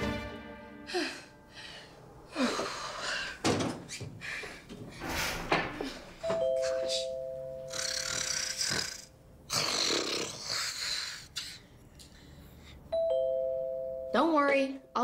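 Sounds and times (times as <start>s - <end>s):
two-note doorbell chime: 6.2s - 7.7s, 12.9s - 14.7s
person snoring: 7.7s - 11.3s.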